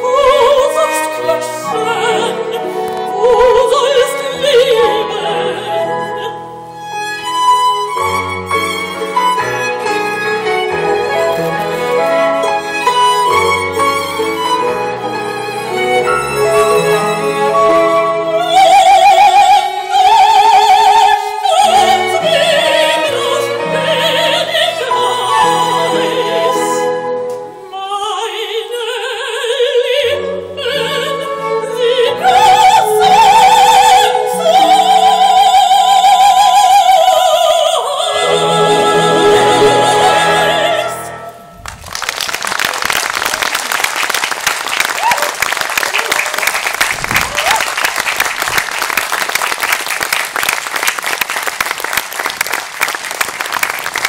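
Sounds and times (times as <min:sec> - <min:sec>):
operatic soprano singing: 0:00.0 - 0:08.0, 0:10.2 - 0:41.4
string and harp ensemble: 0:00.0 - 0:41.8
applause: 0:41.6 - 0:54.0.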